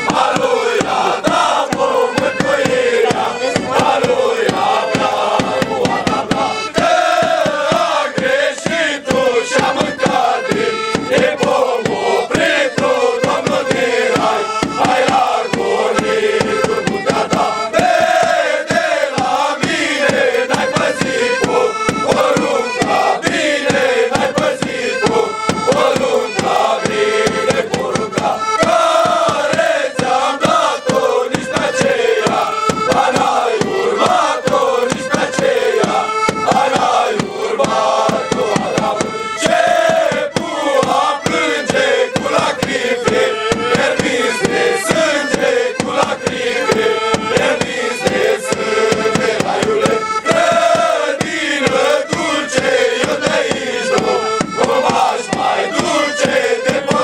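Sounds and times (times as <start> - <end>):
young men singing a carol together: 0.0 - 57.0.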